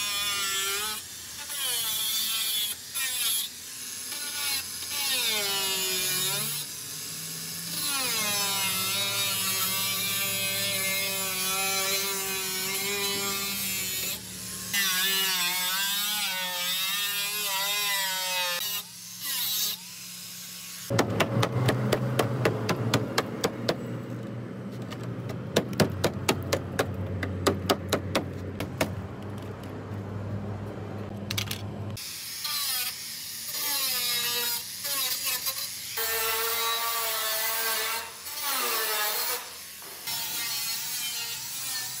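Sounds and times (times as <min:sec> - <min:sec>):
angle grinder on sheet metal: 0:00.0 - 0:22.5, 0:32.0 - 0:42.0
low hum: 0:20.9 - 0:32.0.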